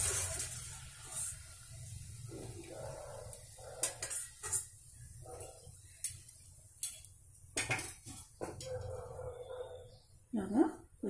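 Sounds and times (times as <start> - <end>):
metal spoon clinking against steel pot: 3.7 - 4.7.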